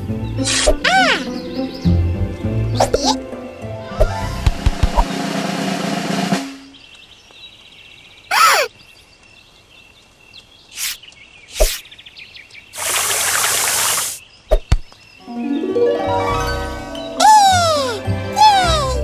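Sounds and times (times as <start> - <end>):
birdsong: 0.0 - 5.2, 6.5 - 19.0
water spraying from hose: 12.8 - 14.2.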